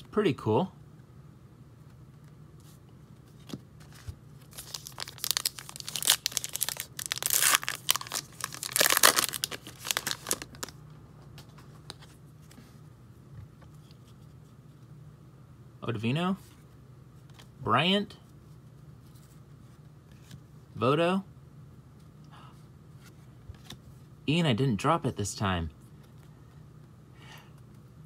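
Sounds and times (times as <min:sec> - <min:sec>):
wrapper crinkling and tearing: 0:04.4 - 0:10.8.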